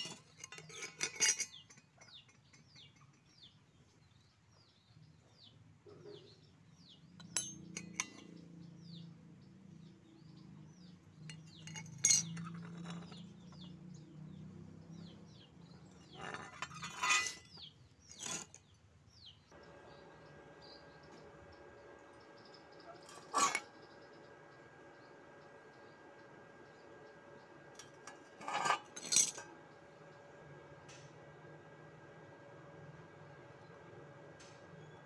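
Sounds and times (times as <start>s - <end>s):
steel plates clinking: 0.0s - 3.2s, 7.2s - 8.4s, 11.3s - 13.3s, 16.0s - 18.5s, 23.0s - 23.7s, 27.8s - 29.5s
small birds chirping: 0.0s - 35.0s.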